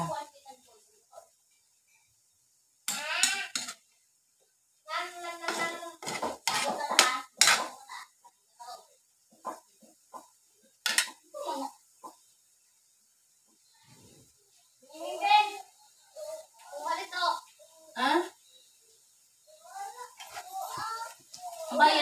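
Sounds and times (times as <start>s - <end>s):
metal spatula scraping wok: 2.9s - 3.9s, 5.1s - 8.1s, 20.1s - 20.8s.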